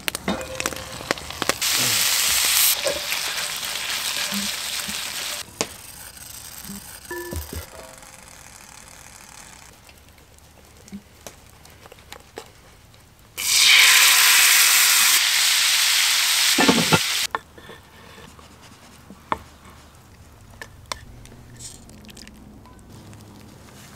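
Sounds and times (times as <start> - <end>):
liquid sizzling in hot pan: 0.0 - 5.5, 13.4 - 17.3.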